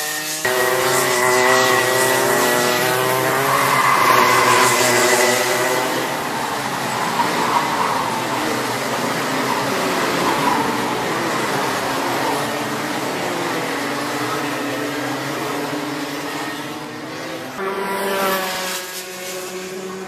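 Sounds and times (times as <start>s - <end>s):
distant kart engines: 0.0s - 20.0s
karts passing: 0.0s - 20.0s
kart engine high note: 0.4s - 11.6s.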